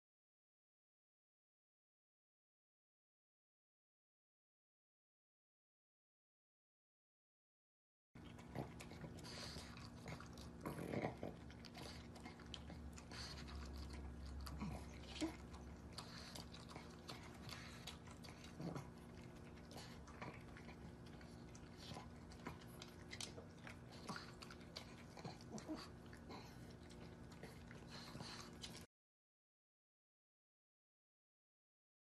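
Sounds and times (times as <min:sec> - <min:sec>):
dog chewing food: 0:08.2 - 0:28.9.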